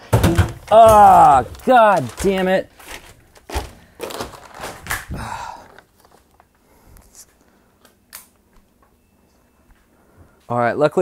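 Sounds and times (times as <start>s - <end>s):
plastic sheeting rustling: 0.4s - 6.4s.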